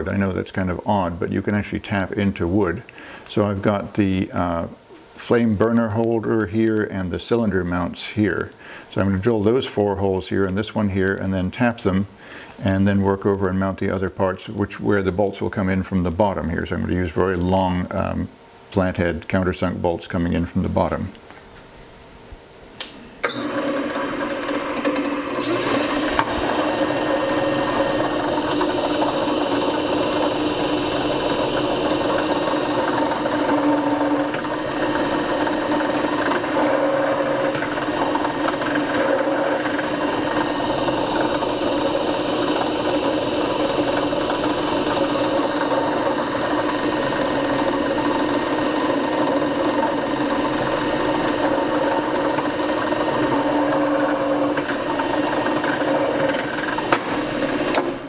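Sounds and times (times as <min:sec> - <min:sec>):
drill press motor hum: 0:22.8 - 0:58.0
drill boring into wood: 0:23.3 - 0:58.0.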